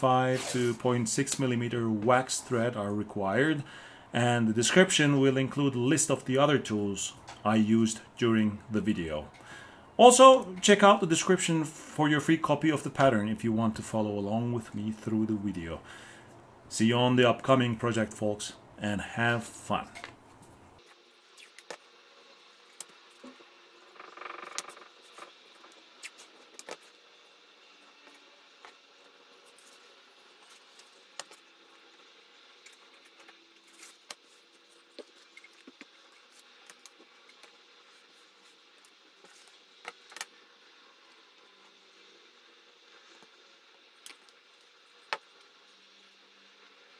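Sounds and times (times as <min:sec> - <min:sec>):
masking tape pulled off roll: 0:00.3 - 0:01.4, 0:24.0 - 0:27.0.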